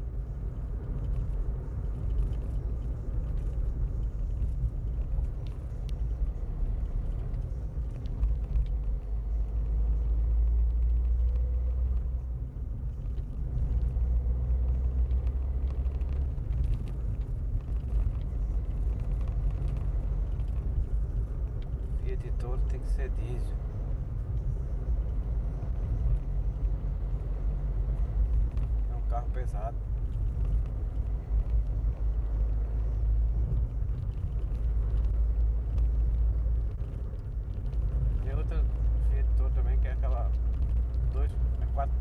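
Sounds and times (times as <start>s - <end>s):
car interior road rumble: 0.0s - 42.0s.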